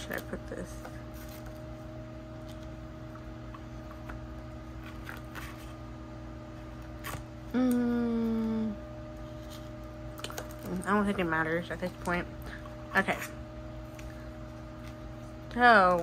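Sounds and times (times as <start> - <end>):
steady background hum: 0.0 - 16.0
person humming hmm: 7.5 - 8.9.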